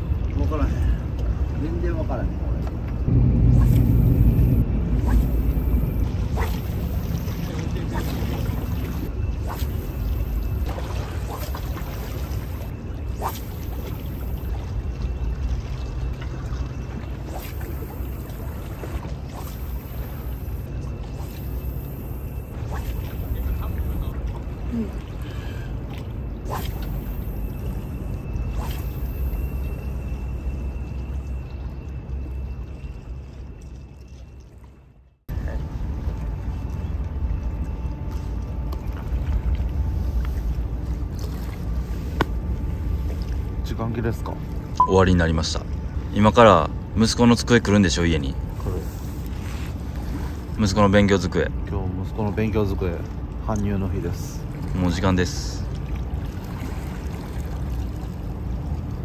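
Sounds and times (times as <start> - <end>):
wind rumbling on microphone: 0.0 - 21.6
water at a seawall: 0.0 - 59.0
wind on microphone: 3.0 - 11.8.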